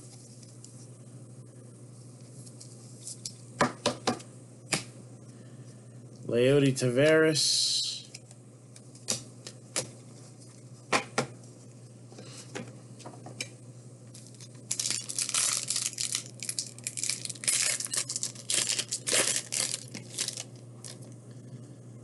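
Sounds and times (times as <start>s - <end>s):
wrapper crinkling and tearing: 14.1s - 21.1s.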